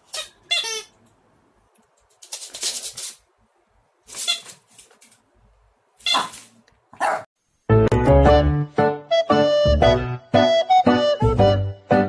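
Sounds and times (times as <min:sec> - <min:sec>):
small dog yapping: 0:06.0 - 0:07.3.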